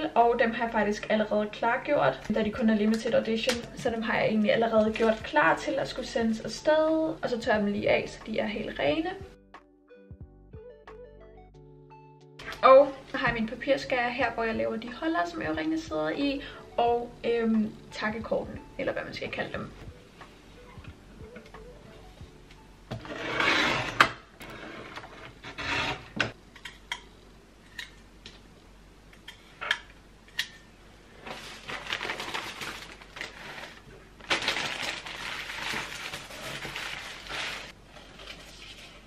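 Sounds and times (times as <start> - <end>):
paper rustling: 31.2 - 39.0.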